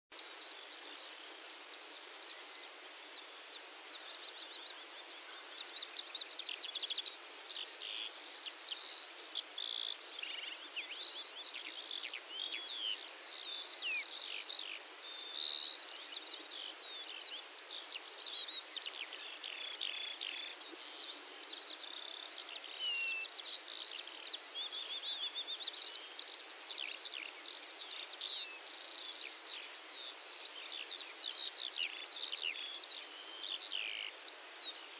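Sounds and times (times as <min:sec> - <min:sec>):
faint steady hiss: 0:00.1 - 0:34.9
songbirds chirping and trilling: 0:00.1 - 0:34.9.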